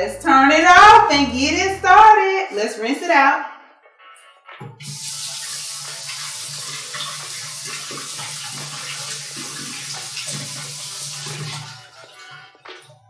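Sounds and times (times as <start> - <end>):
faucet water running onto pasta: 4.8 - 12.8.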